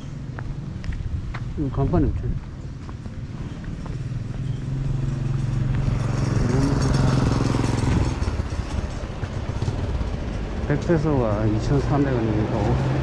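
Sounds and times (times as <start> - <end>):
small motorcycle engine passing: 3.2 - 13.0.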